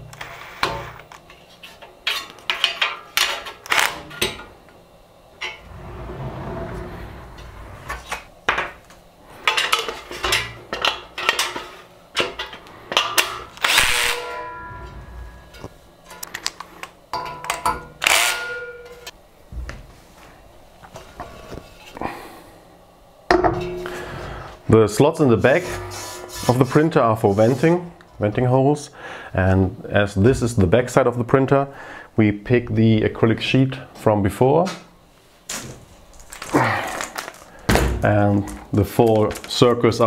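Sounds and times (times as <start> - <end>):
cordless drill running: 13.6 - 14.1.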